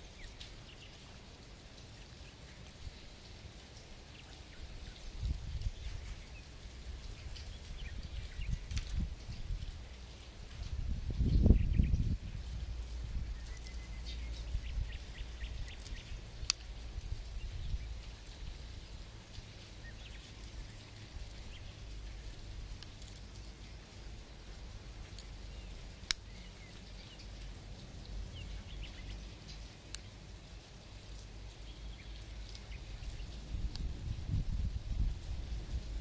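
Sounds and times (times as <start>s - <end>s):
handling ticks: 15.7s - 16.8s, 26.0s - 26.6s.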